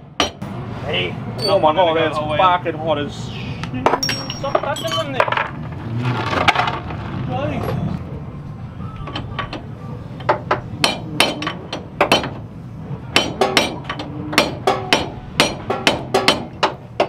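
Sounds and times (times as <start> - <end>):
hammer striking steel: 0.2 - 0.5, 10.3 - 12.4, 13.1 - 17.0.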